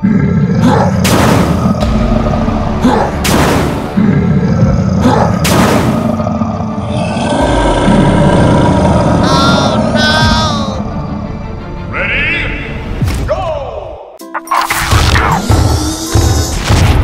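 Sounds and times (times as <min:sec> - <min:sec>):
dense low rumbling noise: 0:01.7 - 0:03.2.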